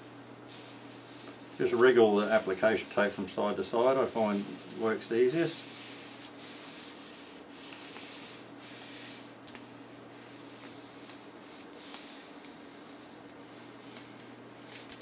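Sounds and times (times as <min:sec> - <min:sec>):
tape peeling papery rustle: 0:07.6 - 0:15.0.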